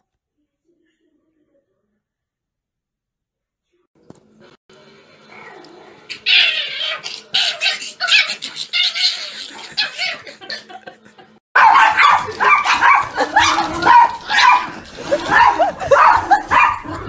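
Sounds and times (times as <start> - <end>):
small dog barking and yapping: 11.6 - 16.9.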